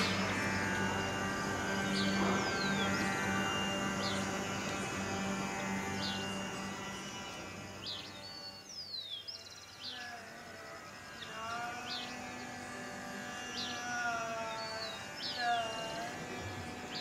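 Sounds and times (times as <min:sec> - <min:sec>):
tanpura drone: 0:00.0 - 0:17.0
person singing long notes: 0:10.0 - 0:17.0.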